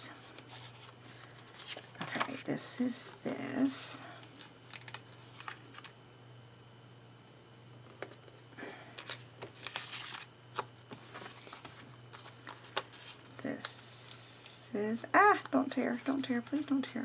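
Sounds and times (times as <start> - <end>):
low steady hum: 0.0 - 17.0
paper rustling and clicking: 4.3 - 5.9, 9.0 - 13.4.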